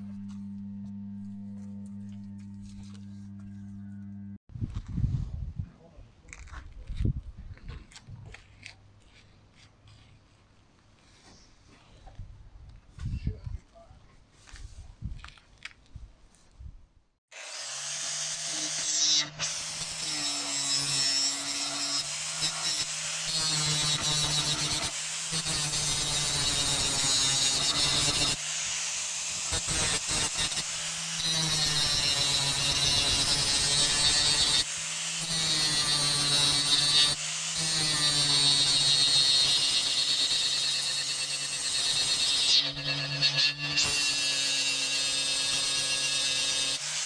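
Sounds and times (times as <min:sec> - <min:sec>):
angle grinder cutting steel: 0:00.0 - 0:04.4, 0:17.3 - 0:47.0.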